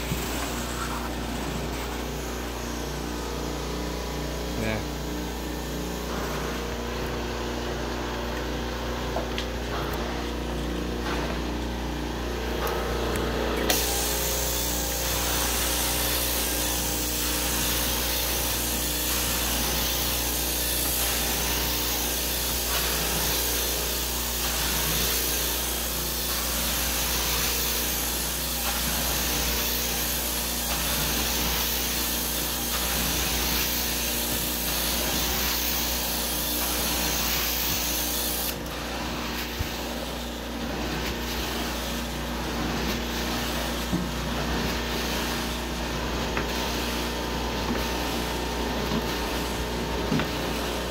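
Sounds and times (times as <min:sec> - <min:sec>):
carpet cleaner suction and spray: 0:00.0 - 0:50.9.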